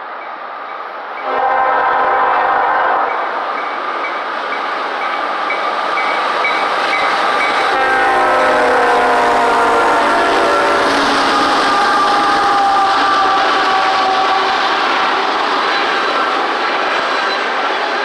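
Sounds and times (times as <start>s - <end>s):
rumble of approaching train: 0.0s - 18.0s
locomotive air horn: 1.2s - 3.3s, 7.7s - 16.2s.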